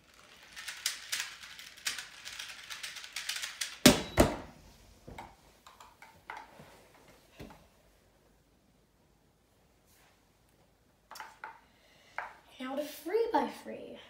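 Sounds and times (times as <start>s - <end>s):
puzzle cube clicking and rattling: 0.0s - 3.8s.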